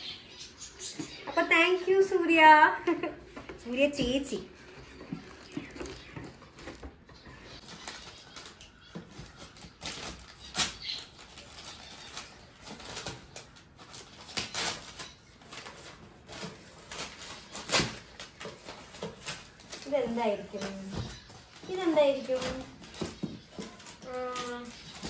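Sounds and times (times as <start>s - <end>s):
packaging crinkling and tearing: 7.5s - 25.0s.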